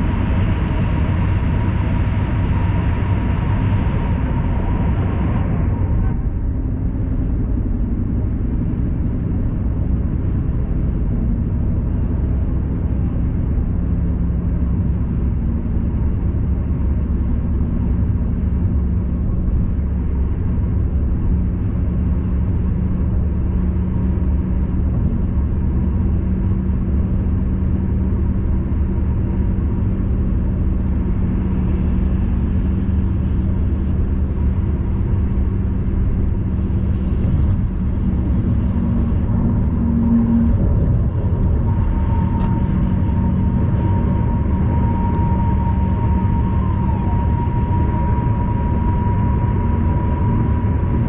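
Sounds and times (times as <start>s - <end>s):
low steady hum: 0.0s - 51.0s
road and tyre rumble: 0.0s - 51.0s.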